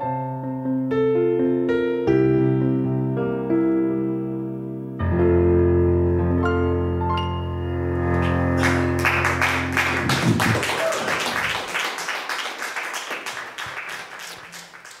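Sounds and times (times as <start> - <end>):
piano chord: 0.0 - 10.7
audience applauding: 8.1 - 15.0.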